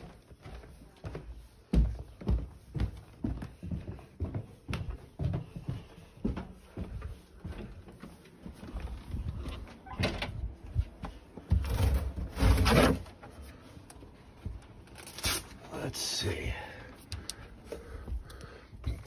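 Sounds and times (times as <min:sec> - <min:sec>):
footsteps: 0:00.0 - 0:14.8.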